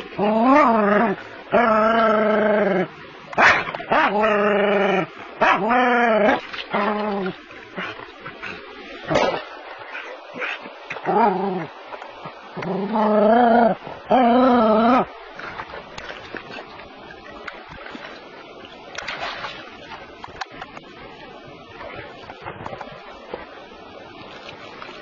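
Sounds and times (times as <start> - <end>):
water splashing: 2.6 - 13.0, 13.7 - 25.0.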